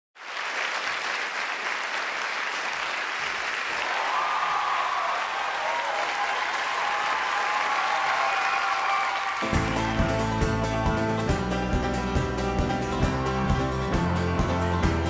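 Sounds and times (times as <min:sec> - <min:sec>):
audience applauding: 0:00.2 - 0:11.6
cheering voices: 0:02.6 - 0:11.1.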